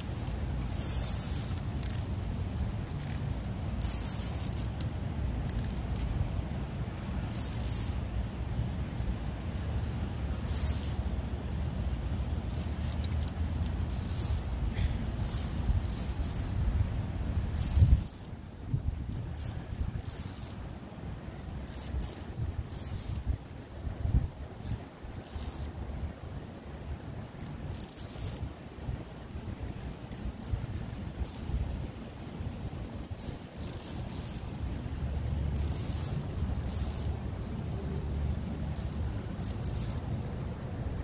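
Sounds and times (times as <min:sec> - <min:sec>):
high rattling clicks: 0:02.9 - 0:07.9
wind buffeting microphone: 0:15.5 - 0:20.1.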